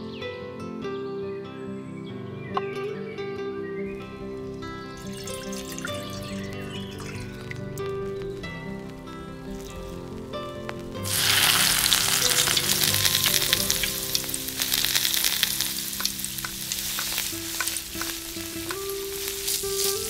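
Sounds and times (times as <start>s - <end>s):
oil crackling pops: 4.2s - 20.0s
prawns sizzling in hot oil: 4.4s - 20.0s.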